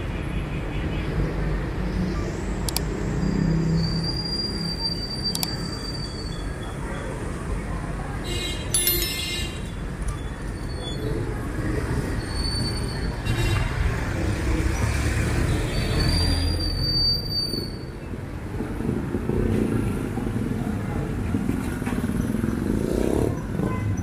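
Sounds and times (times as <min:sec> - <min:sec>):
traffic engines rumbling: 0:00.0 - 0:24.0
train wheels squealing: 0:03.0 - 0:07.2, 0:10.0 - 0:13.2, 0:15.7 - 0:18.1.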